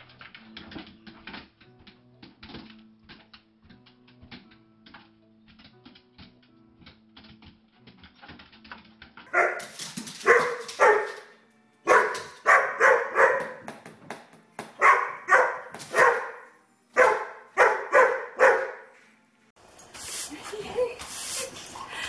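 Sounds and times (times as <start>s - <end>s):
dog barking: 9.3s - 11.3s, 11.9s - 13.6s, 14.8s - 18.9s.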